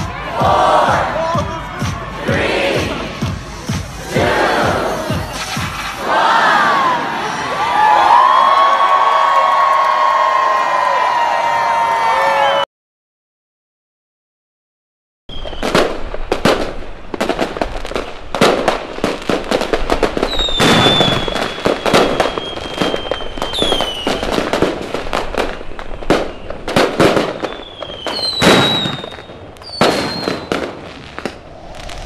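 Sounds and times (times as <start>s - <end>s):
fireworks crackling bangs: 4.9s - 6.0s, 15.3s - 32.0s
firework whistles: 5.1s - 6.0s, 15.3s - 16.8s, 19.9s - 32.0s.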